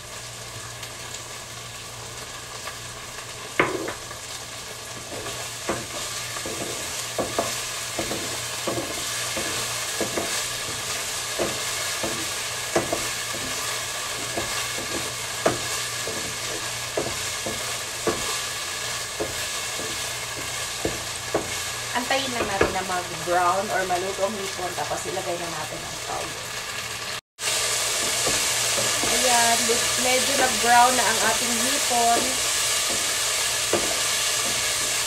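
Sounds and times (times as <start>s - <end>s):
shrimp sizzling in a pan: 0.0s - 35.0s
wooden spatula knocking on pan: 3.6s - 4.0s, 5.0s - 13.6s, 14.2s - 18.4s, 19.2s - 21.6s, 22.3s - 22.8s, 33.7s - 34.8s.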